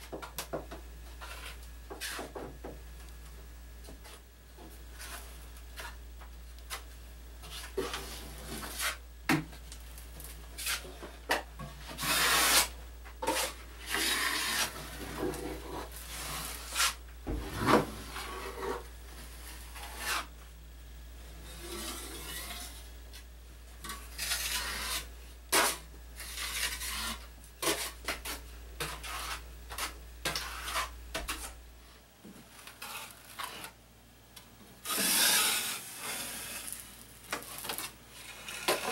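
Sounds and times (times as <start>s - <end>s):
drywall knife scraping compound: 1.2s - 2.4s, 7.4s - 9.0s, 10.5s - 20.4s, 21.4s - 23.2s, 23.8s - 31.6s, 32.6s - 33.8s, 34.8s - 38.9s.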